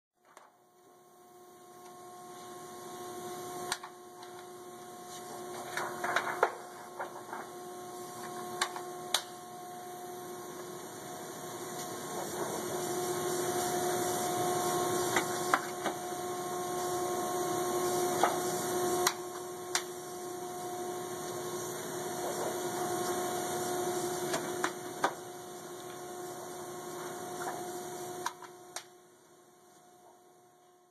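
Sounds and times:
machinery hum: 0:00.6 - 0:30.9
metal plate clicking and crinkling: 0:05.5 - 0:07.5.

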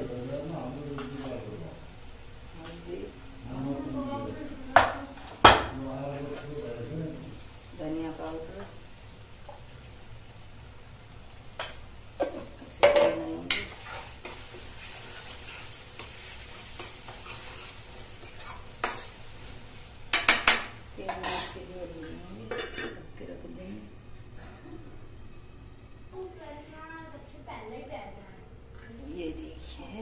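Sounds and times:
masala sizzling in a pan: 0:00.0 - 0:30.0
metal spatula scraping a pan: 0:13.5 - 0:19.5, 0:20.1 - 0:21.7.

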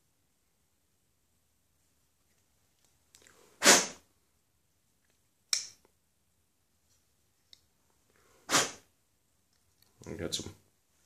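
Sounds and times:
sharp puffs of breath: 0:03.3 - 0:04.1, 0:08.1 - 0:08.9.

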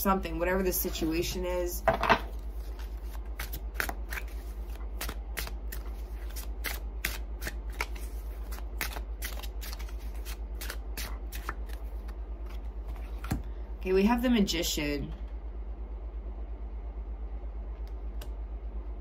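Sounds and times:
steady low hum: 0:00.0 - 0:19.0
cards being shuffled: 0:02.2 - 0:13.4.

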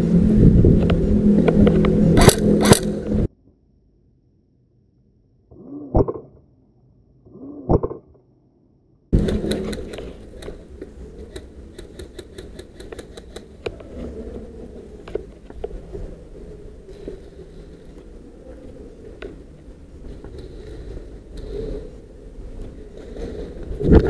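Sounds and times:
outdoor background noise: 0:00.0 - 0:24.0
airsoft rifle shots: 0:02.2 - 0:03.0
gear clicking and knocking: 0:09.2 - 0:13.9.

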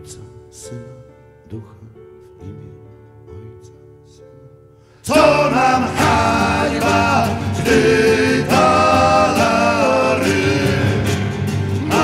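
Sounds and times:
instrumental accompaniment: 0:05.1 - 0:12.0
men singing together: 0:05.1 - 0:12.0.

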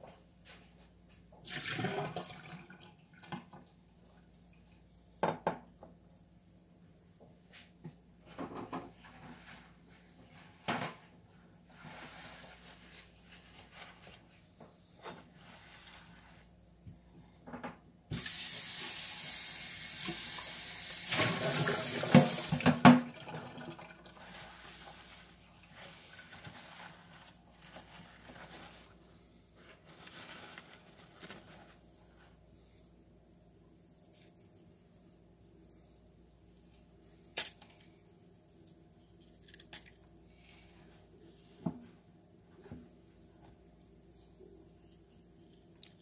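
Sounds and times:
paper towel rustling: 0:11.7 - 0:14.5, 0:24.2 - 0:32.4
water tap running: 0:18.1 - 0:24.8.

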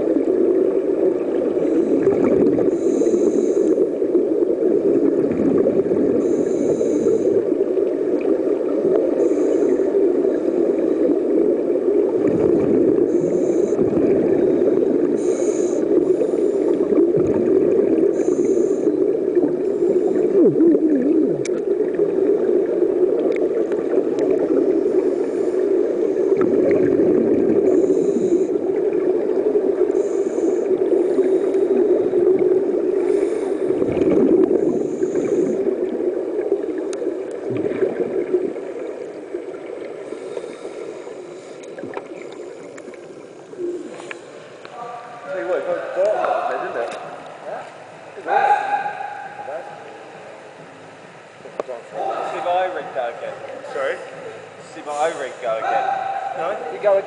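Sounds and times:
muffled underwater rumble: 0:00.0 - 0:57.0
underwater bubbles: 0:00.0 - 0:57.0
scuba regulator breathing hiss: 0:02.6 - 0:03.8, 0:06.2 - 0:07.4, 0:09.2 - 0:10.8, 0:13.1 - 0:13.9, 0:15.1 - 0:16.9, 0:18.1 - 0:19.0, 0:27.6 - 0:28.6, 0:29.9 - 0:31.8, 0:33.0 - 0:33.8, 0:34.6 - 0:35.7, 0:40.0 - 0:41.7, 0:54.8 - 0:55.5.

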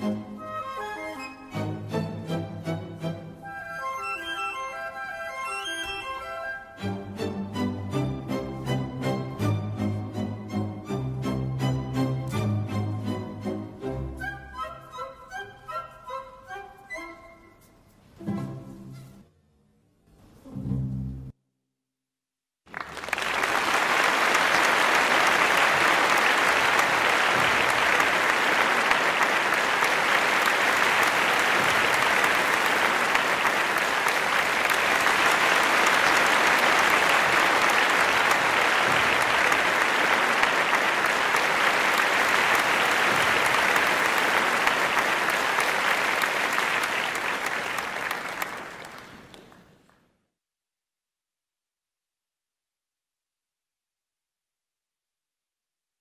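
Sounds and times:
audience applauding: 0:22.7 - 0:50.0.

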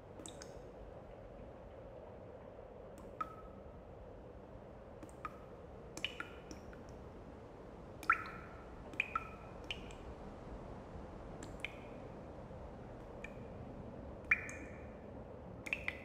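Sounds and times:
faint steady hum: 0:00.0 - 0:16.0
water dripping plinks: 0:00.2 - 0:00.7, 0:03.0 - 0:03.7, 0:05.0 - 0:07.0, 0:08.0 - 0:10.2, 0:11.3 - 0:12.2, 0:12.9 - 0:16.0.

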